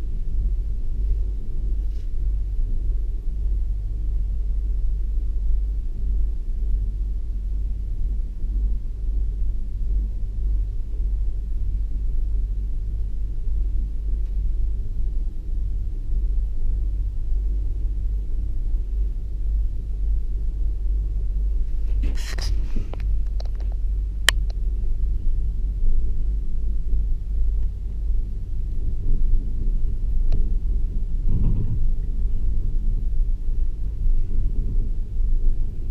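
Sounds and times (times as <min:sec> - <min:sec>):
gondola cabin low rumble: 0:00.0 - 0:35.9
short hiss: 0:21.9 - 0:23.0.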